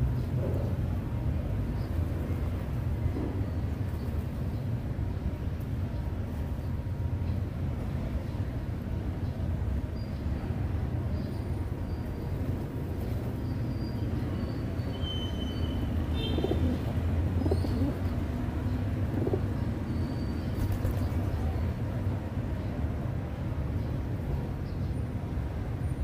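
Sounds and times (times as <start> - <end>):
small birds chirping: 12.8 - 21.7
pigeons cooing: 16.2 - 18.2, 19.1 - 19.7.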